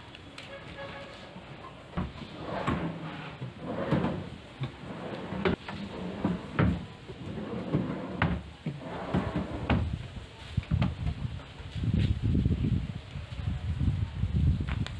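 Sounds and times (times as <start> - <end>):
drawers sliding on metal slides: 0.9 - 9.9
drawers knocking shut: 1.9 - 9.9.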